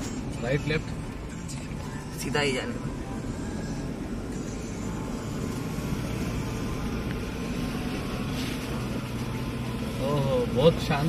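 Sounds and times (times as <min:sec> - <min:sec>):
car engine running: 0:00.0 - 0:11.0
road rumble: 0:00.0 - 0:11.0.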